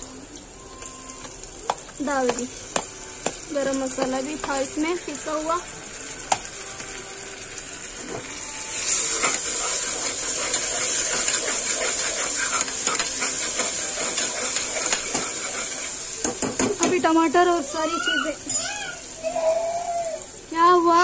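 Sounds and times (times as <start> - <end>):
onions sizzling in hot oil: 0.0 - 21.0
spoon scraping a pot: 8.9 - 16.0.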